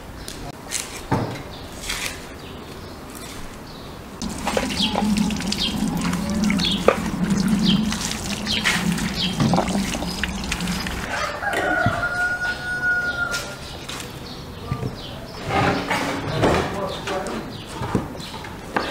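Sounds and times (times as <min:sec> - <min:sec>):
chickens clucking: 0:04.2 - 0:13.5
rooster crowing: 0:10.0 - 0:13.6.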